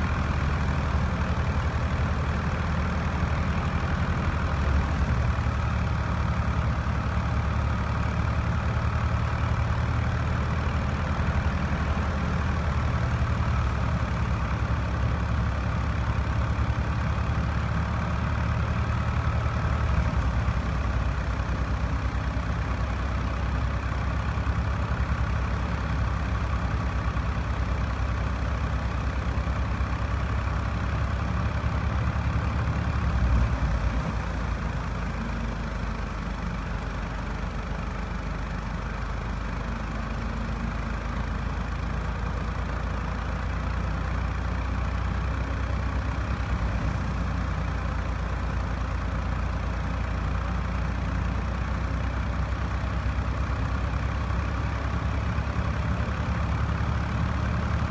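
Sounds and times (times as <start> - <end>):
tractor diesel engine running: 0.0 - 57.9.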